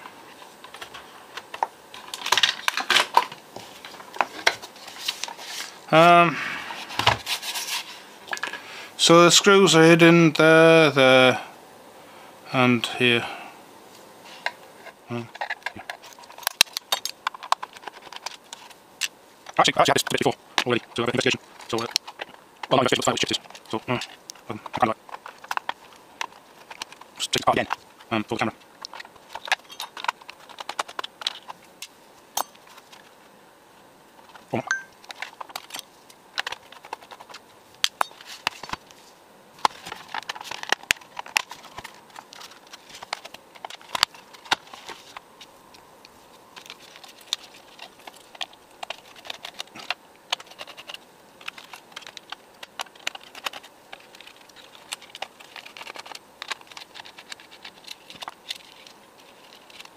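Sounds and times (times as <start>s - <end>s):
case clicks taps and rattles: 15.3s - 33.1s, 34.2s - 38.9s, 39.6s - 45.8s, 46.6s - 59.9s.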